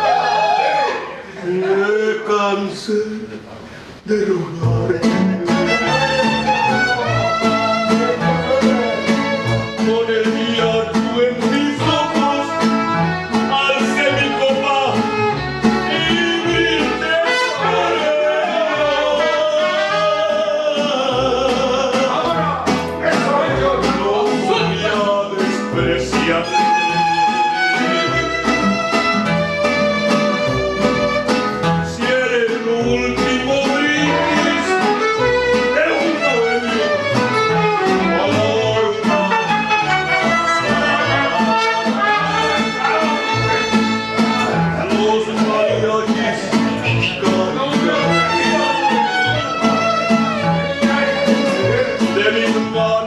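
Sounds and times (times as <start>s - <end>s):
strummed guitars: 3.8s - 53.0s
plucked bass line: 4.5s - 53.0s
violins playing melody: 5.6s - 10.1s, 11.8s - 20.0s, 26.2s - 31.8s, 33.8s - 44.9s, 46.8s - 52.5s
trumpet: 5.6s - 21.4s, 26.2s - 32.0s, 33.2s - 44.8s, 47.8s - 52.4s.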